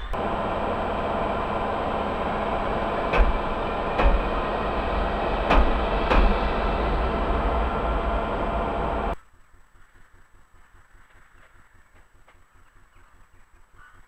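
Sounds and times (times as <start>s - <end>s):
electric locomotive hum: 0.0s - 9.2s
wheels clacking over rail joint: 1.1s - 8.7s.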